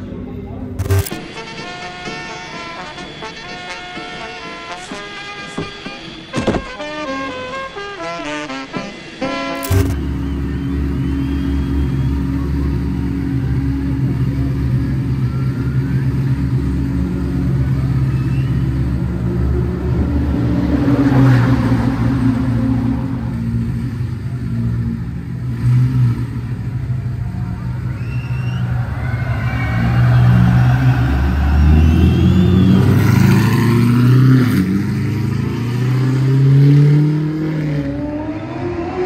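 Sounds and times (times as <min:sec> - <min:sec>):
car engine running: 0:00.2 - 0:01.3, 0:09.6 - 0:35.7.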